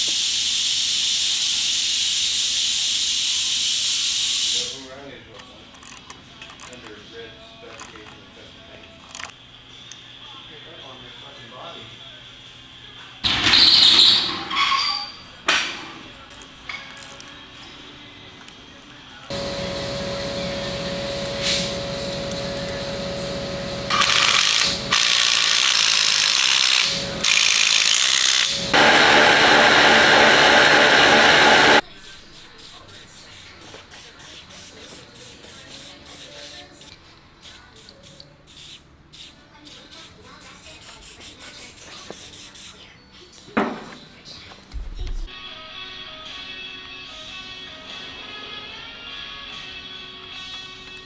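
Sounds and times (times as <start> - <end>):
aerosol spray can hissing: 0.0 - 4.8, 37.4 - 40.0
steady hum: 19.3 - 25.0, 28.5 - 32.0.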